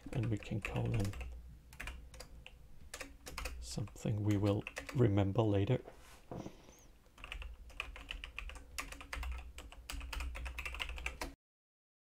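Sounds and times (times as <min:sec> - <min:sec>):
fast typing on computer keyboard: 0:00.0 - 0:05.1, 0:07.2 - 0:11.4.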